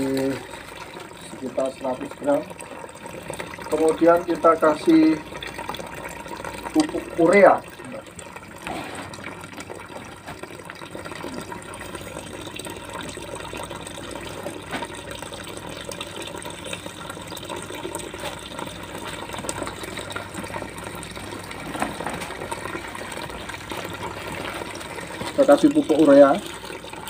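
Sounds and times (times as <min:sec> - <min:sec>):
water splashing from a hose: 0:00.0 - 0:02.4.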